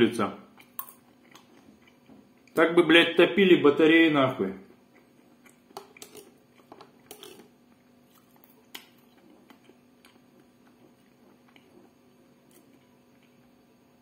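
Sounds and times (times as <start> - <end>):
faint steady hum: 0.0 - 14.0
person chewing: 0.5 - 2.6, 4.7 - 13.6.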